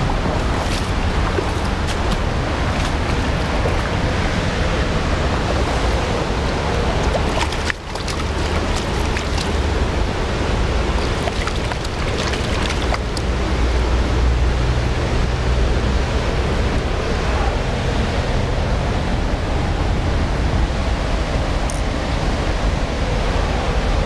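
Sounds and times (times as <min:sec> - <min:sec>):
stream rushing over stones: 0:00.0 - 0:14.2.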